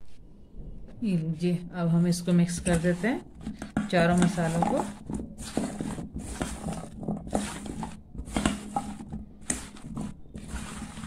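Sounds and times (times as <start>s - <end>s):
spatula scraping in metal bowl: 2.4s - 11.0s.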